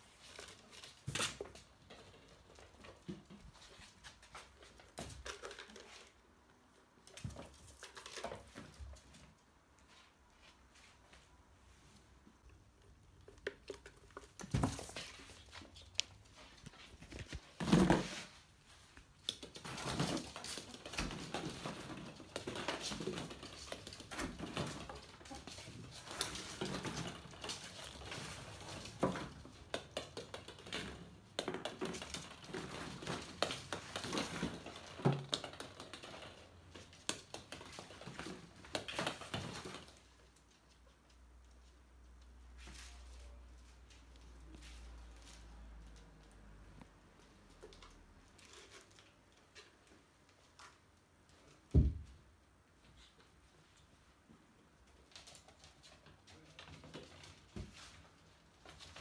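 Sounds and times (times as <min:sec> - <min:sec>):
plastic balls knocking and rolling: 0:12.4 - 0:16.2, 0:19.0 - 0:40.4.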